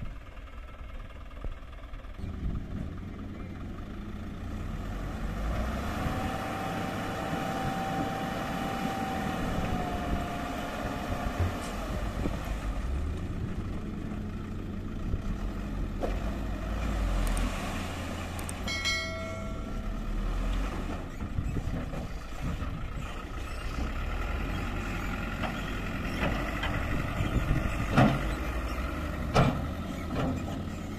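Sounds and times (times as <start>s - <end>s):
diesel truck engine running: 0.0s - 30.9s
short steady tone: 18.7s - 20.3s.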